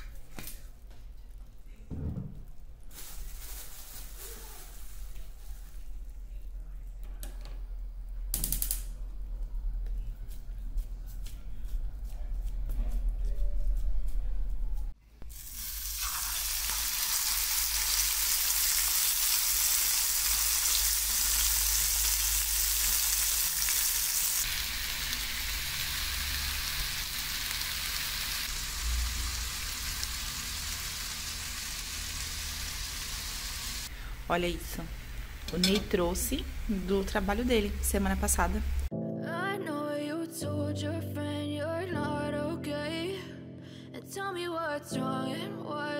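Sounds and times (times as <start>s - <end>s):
patties sizzling in a frying pan: 15.3s - 38.8s.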